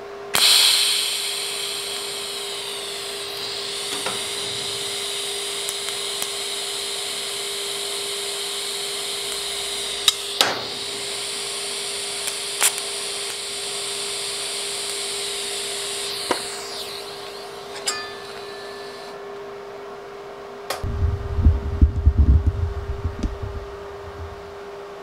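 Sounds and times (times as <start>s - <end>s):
welding hum with hiss: 0.0s - 25.0s
sharp cracks of tack welds: 0.3s - 18.4s.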